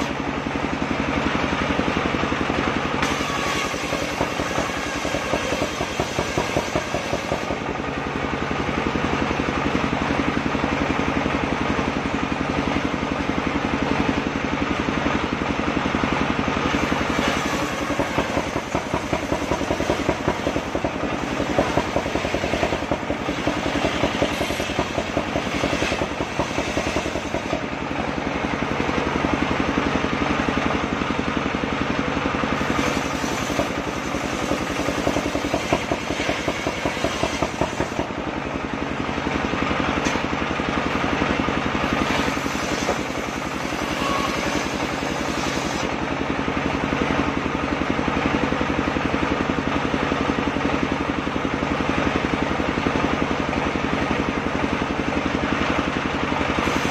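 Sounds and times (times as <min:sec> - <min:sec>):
circular saw running: 0:00.0 - 0:56.9.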